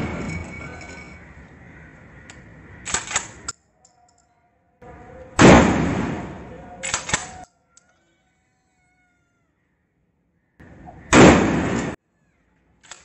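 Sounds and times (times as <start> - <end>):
shotgun shot: 5.4 - 7.4, 11.1 - 12.0.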